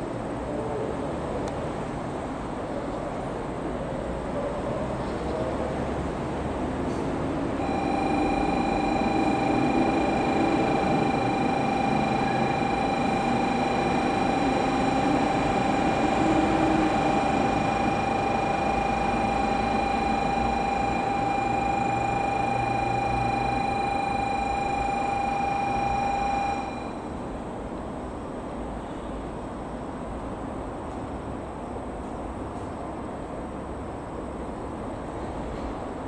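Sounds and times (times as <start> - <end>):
high electronic buzzer tone: 7.6 - 27.1.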